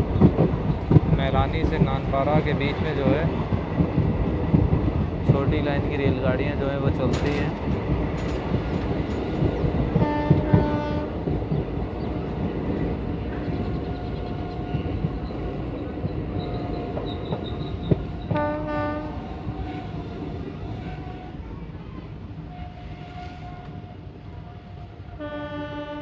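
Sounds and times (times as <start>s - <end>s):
train wheels clattering on track: 0.0s - 24.0s
train horn blasts: 10.0s - 11.2s, 18.2s - 20.0s, 22.5s - 26.0s.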